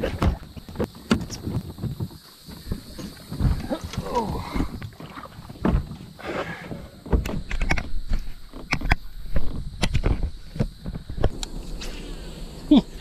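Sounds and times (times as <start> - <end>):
sharp clicks and knocks: 7.1 - 11.6.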